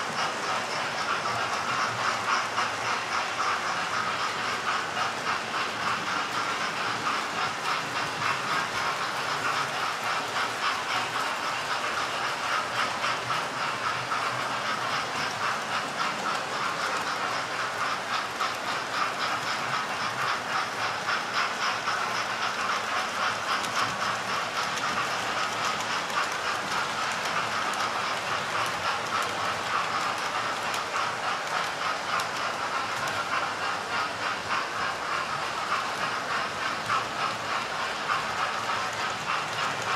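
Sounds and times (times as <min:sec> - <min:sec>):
model train motors whirring: 0:00.0 - 0:39.9
wheels ticking over track: 0:00.0 - 0:39.9.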